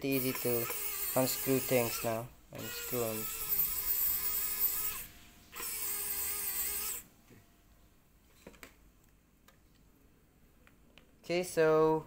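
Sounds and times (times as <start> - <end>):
electric screwdriver running: 0.0 - 7.1.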